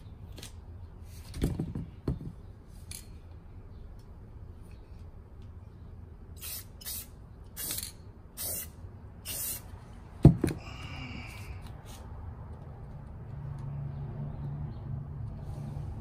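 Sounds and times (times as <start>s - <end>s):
aerosol spray can hissing: 6.4s - 9.6s.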